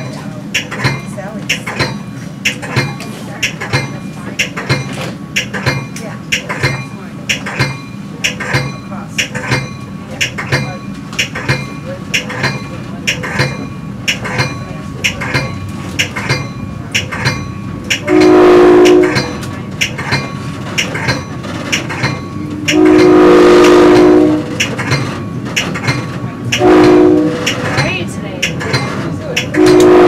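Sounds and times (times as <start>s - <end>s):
train running rumble: 0.0s - 30.0s
wheels clicking over rail joints: 0.0s - 30.0s
train horn blasts: 18.0s - 19.4s, 22.6s - 24.6s, 26.5s - 27.5s, 29.5s - 30.0s.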